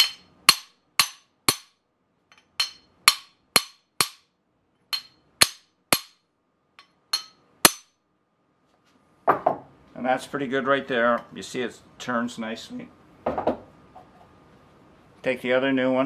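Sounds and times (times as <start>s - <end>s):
hammer striking steel: 0.0s - 4.3s, 4.9s - 8.0s.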